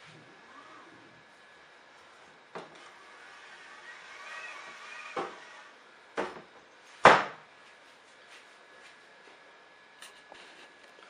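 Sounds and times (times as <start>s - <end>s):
faint wavering whine: 0.0s - 7.0s.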